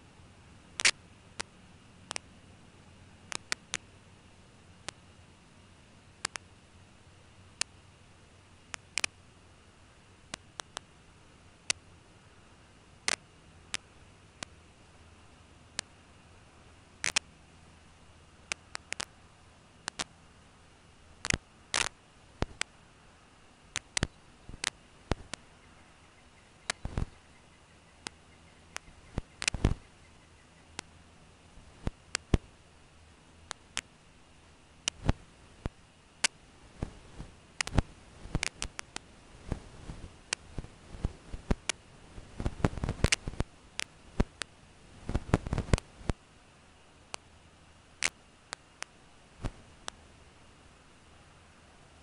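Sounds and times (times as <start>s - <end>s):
faint steady hiss: 0.0s - 52.0s
sharp clicks and crackles: 0.8s - 2.3s, 3.3s - 3.9s, 6.2s - 6.5s, 7.5s - 7.7s, 8.6s - 9.2s, 10.2s - 10.9s, 13.0s - 14.6s, 15.7s - 16.0s, 17.0s - 17.3s, 18.4s - 19.2s, 19.8s - 20.2s, 21.2s - 22.8s, 23.7s - 25.5s, 26.6s - 27.2s, 27.9s - 30.9s, 31.6s - 32.5s, 33.4s - 33.9s, 34.8s - 46.2s, 47.1s - 47.3s, 48.0s - 50.0s
sharp clicks and ticks: 2.1s - 2.3s, 6.2s - 6.4s, 8.7s - 9.2s, 13.0s - 14.6s, 15.7s - 15.9s, 17.0s - 17.3s, 19.8s - 20.1s, 21.2s - 22.7s, 23.7s - 25.5s, 26.6s - 27.1s, 27.9s - 30.9s, 37.6s - 39.6s, 42.4s - 44.5s.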